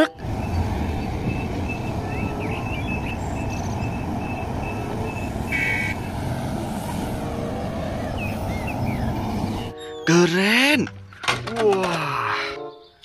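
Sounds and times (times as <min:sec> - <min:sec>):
diesel machinery rumbling: 0:00.0 - 0:09.8.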